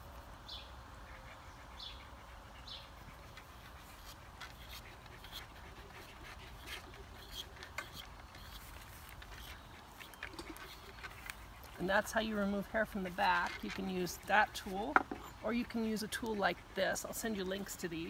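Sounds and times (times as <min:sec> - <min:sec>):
hair plucking ticks: 0:03.3 - 0:18.0.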